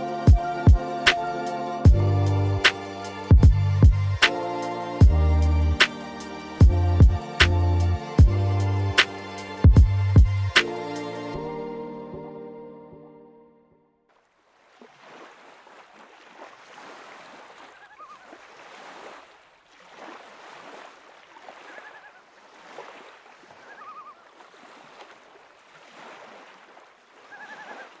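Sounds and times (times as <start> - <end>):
music: 0.0 - 14.0
lake waves washing: 14.1 - 28.0
bird warbling call: 17.7 - 18.4, 21.6 - 22.3, 23.5 - 24.3, 27.2 - 28.0.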